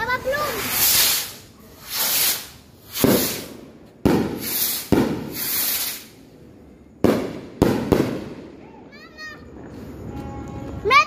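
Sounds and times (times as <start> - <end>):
sky rockets cracking and hissing: 0.0 - 6.2.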